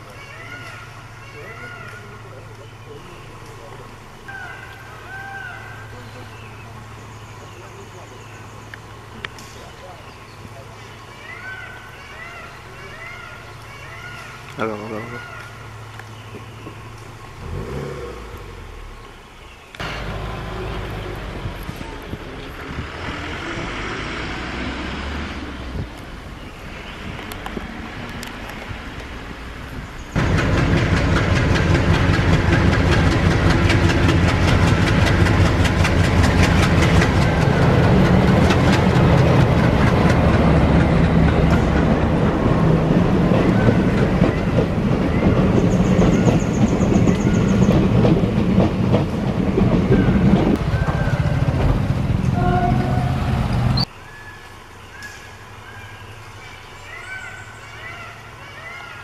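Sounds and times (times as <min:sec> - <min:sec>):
train wheels clattering on rails: 0:30.2 - 0:53.7.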